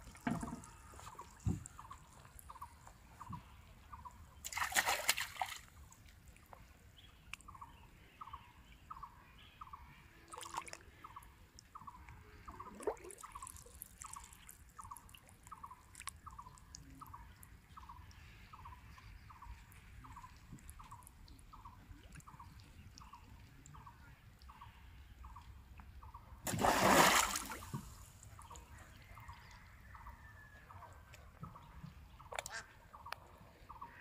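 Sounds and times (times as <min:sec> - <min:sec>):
water drips and sloshes: 0:00.0 - 0:03.5, 0:04.4 - 0:06.7, 0:10.3 - 0:17.4, 0:26.4 - 0:28.7
loud water splash: 0:26.5 - 0:27.8.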